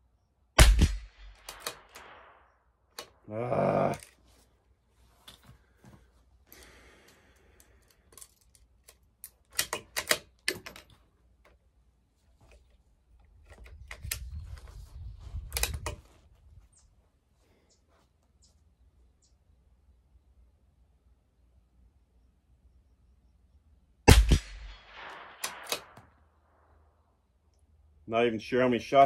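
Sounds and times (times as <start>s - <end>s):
rifle bolt clicks and clacks: 1.2s - 2.2s, 7.6s - 11.6s, 12.5s - 14.6s, 15.5s - 16.0s, 24.9s - 26.1s.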